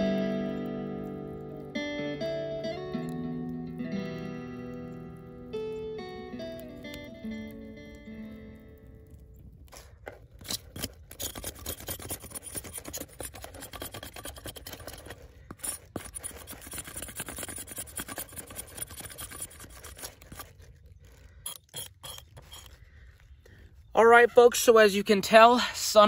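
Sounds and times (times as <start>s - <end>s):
knife blade scraping cactus: 9.7s - 22.9s.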